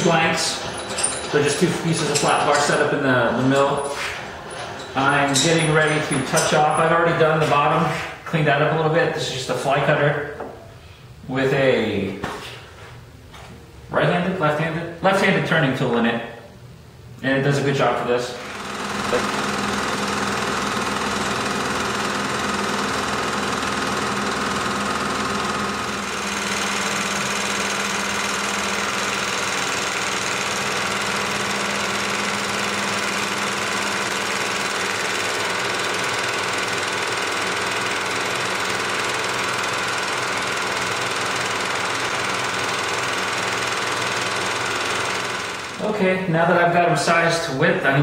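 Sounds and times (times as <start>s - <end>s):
milling machine cutting steel: 0.0s - 7.2s, 18.4s - 45.8s.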